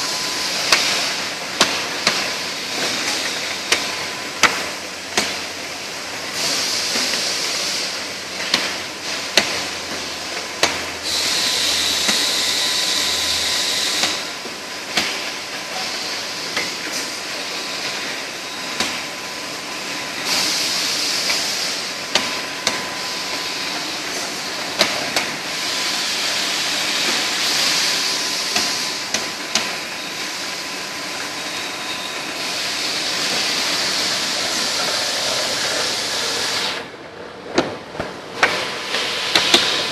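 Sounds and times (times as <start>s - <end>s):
bottling machinery running: 0.0s - 39.9s
high machine hiss: 10.9s - 36.8s, 38.5s - 39.9s.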